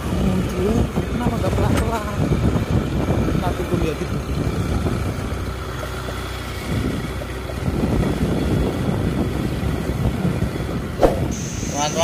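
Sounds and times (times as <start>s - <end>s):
vehicle engine and road noise: 0.0s - 12.0s
wind buffeting microphone: 0.0s - 12.0s.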